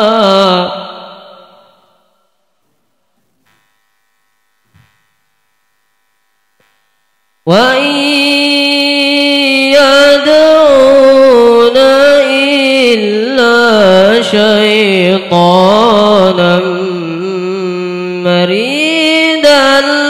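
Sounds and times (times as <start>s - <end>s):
man reciting melodically through microphone: 0.0s - 1.9s, 7.4s - 20.0s.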